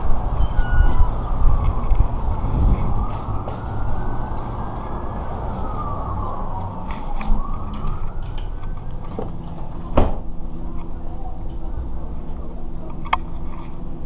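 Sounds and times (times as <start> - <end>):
siren wailing: 0.0 - 9.9.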